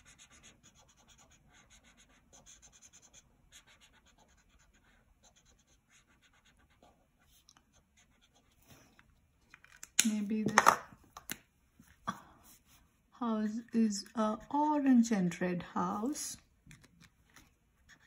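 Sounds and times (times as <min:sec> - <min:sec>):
marker scratching on paper: 0:00.0 - 0:08.7, 0:16.8 - 0:18.0.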